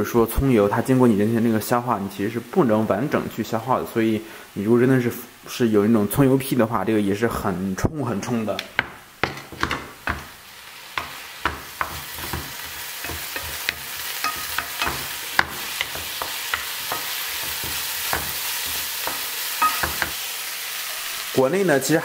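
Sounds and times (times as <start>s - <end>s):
oil sizzling: 0.0s - 5.3s, 8.2s - 22.0s
spatula scraping frying pan: 11.0s - 20.2s.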